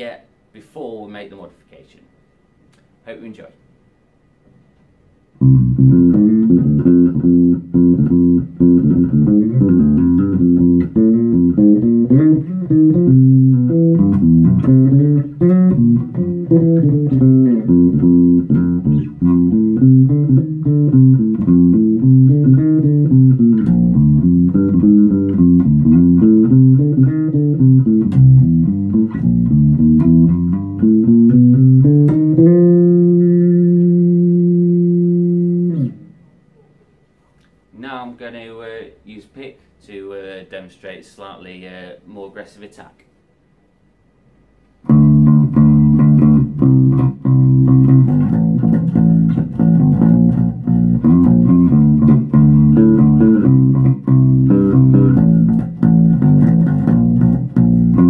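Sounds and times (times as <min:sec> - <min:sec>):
plucked bass guitar line: 0:05.4 - 0:36.1, 0:44.8 - 0:58.0.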